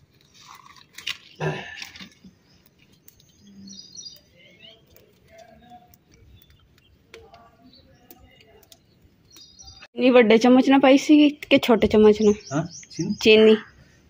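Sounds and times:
small birds chirping: 0:00.0 - 0:14.0
firewood and tin knocking: 0:00.1 - 0:09.8.

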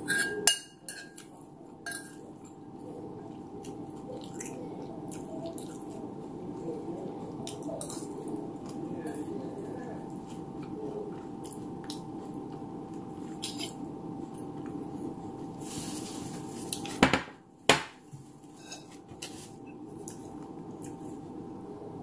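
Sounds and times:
metal spoon clinking on dishes: 0:00.0 - 0:02.2
dishes knocking: 0:17.0 - 0:18.0.

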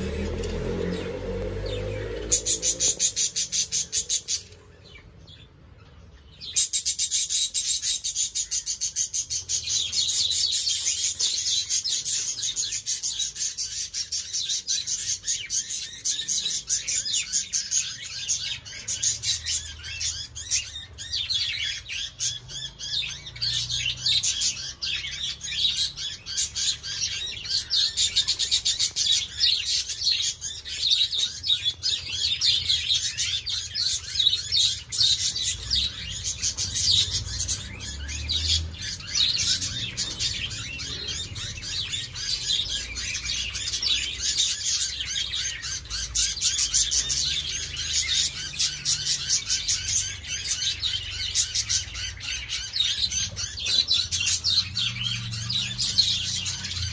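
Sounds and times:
budgerigars chattering: 0:00.0 - 0:56.9.

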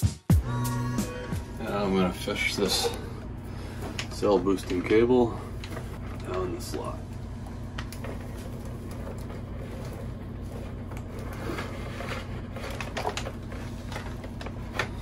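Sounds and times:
steady low hum: 0:00.3 - 0:15.0
cables rustling and scraping: 0:01.6 - 0:15.0.

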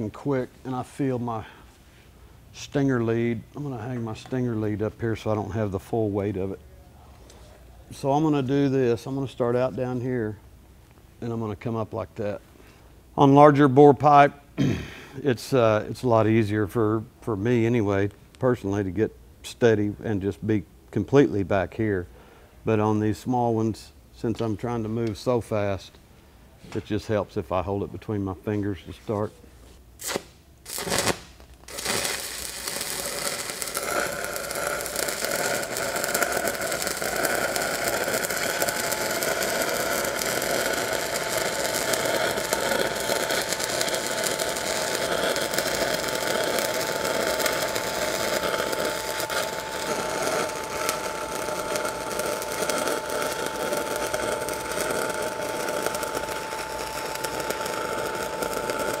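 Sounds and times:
welding arc crackling: 0:30.0 - 0:59.0.

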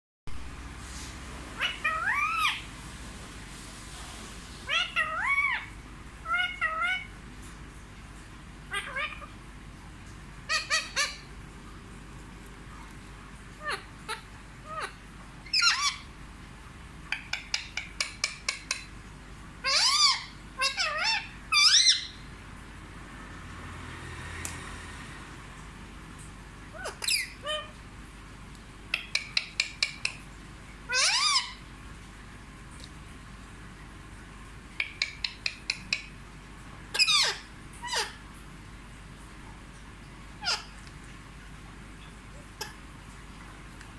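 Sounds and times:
parakeet vocalising: 0:01.5 - 0:02.7, 0:04.6 - 0:07.2, 0:08.6 - 0:09.5, 0:10.4 - 0:11.4, 0:12.7 - 0:16.1, 0:17.0 - 0:19.0, 0:19.6 - 0:22.3, 0:26.6 - 0:27.8, 0:28.9 - 0:31.6, 0:34.7 - 0:36.2, 0:36.9 - 0:38.2, 0:40.4 - 0:40.8, 0:42.0 - 0:42.8.

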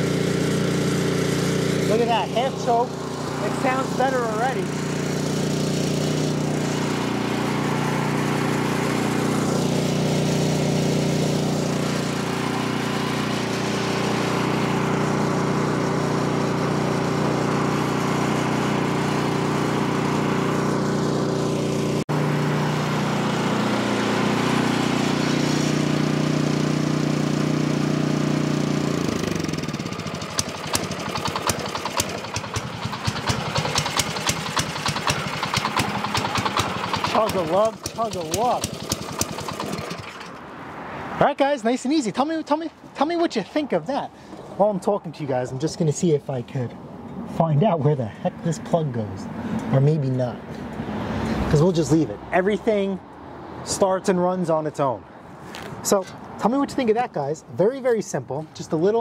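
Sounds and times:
snowblower engine running: 0:00.0 - 0:46.4.

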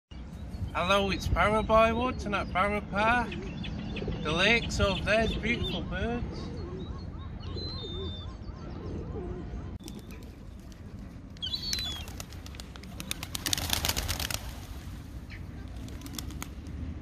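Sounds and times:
pigeon wings flapping: 0:09.8 - 0:15.0, 0:15.7 - 0:16.8.

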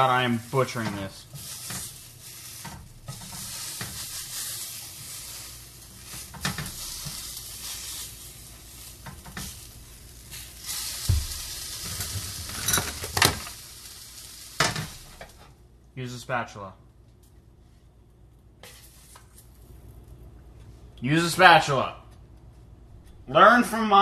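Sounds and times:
fish sizzling in a pan: 0:00.0 - 0:15.5, 0:18.6 - 0:19.4
tongs scraping and knocking pan: 0:00.6 - 0:08.1, 0:08.7 - 0:13.5.

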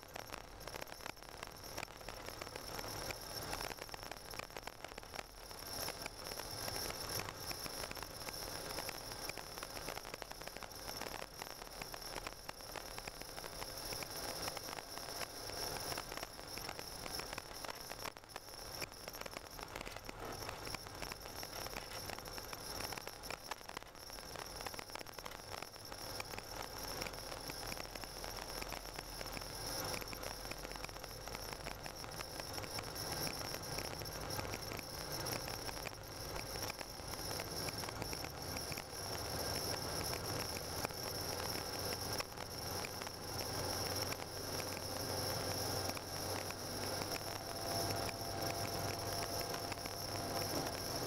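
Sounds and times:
faint high-pitched tone: 0:00.0 - 0:51.0
tyres on snowy road: 0:26.0 - 0:51.0.

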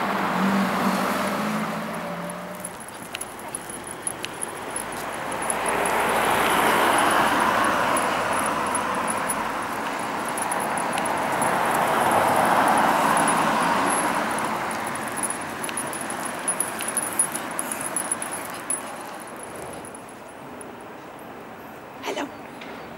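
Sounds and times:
vehicles passing: 0:00.0 - 0:22.9.

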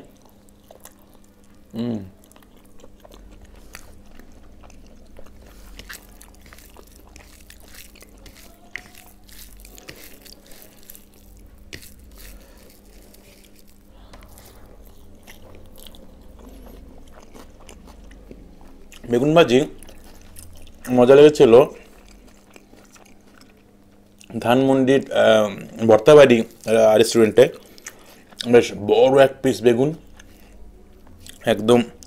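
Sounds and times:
person chewing: 0:00.0 - 0:24.4, 0:25.4 - 0:28.6, 0:30.0 - 0:32.0
faint steady hum: 0:00.0 - 0:32.0
fingers mixing rice on a plate: 0:03.6 - 0:15.9.

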